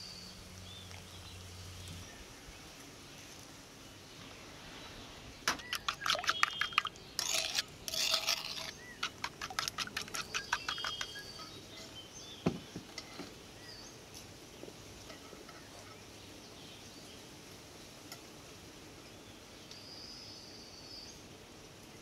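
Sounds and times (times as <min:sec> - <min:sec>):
spoon clinking and scraping bowl: 0:05.6 - 0:11.9
thump: 0:12.4 - 0:12.9.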